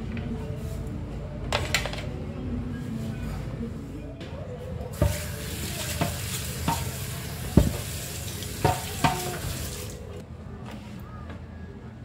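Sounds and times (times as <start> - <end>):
food sizzling in a pan: 5.0 - 10.0
utensil clinking against pan: 5.9 - 7.0.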